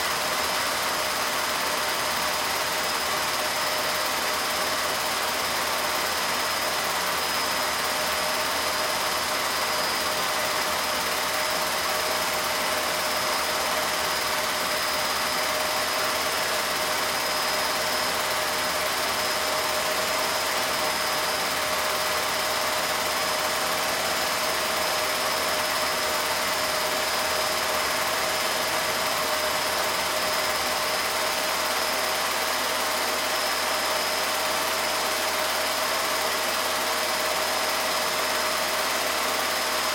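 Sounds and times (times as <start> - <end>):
film projector whirring: 0.1 - 39.9.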